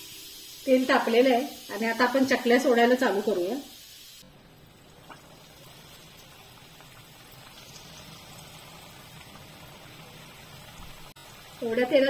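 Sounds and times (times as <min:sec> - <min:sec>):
dough frying in hot oil: 0:00.0 - 0:12.0.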